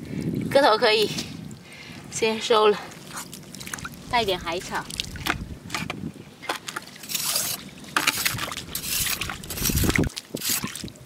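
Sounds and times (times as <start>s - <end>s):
boots splashing through water and mud: 2.8s - 11.0s.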